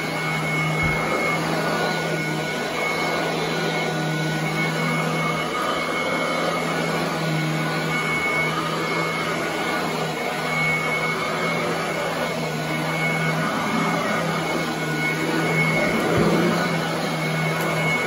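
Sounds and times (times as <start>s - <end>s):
vacuum cleaner running: 0.0s - 18.0s.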